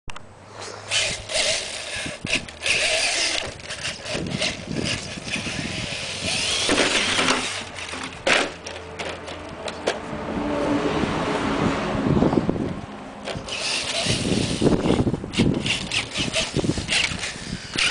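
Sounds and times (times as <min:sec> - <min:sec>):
toy truck motors whirring: 0:00.5 - 0:08.8, 0:13.3 - 0:17.9
toy truck knocking over: 0:01.1 - 0:09.3.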